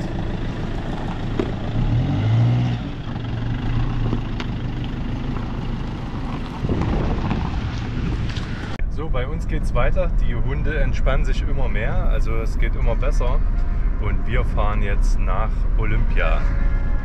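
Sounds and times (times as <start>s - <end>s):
van engine running: 0.0s - 8.8s
tyres crunching on stones: 3.8s - 8.8s.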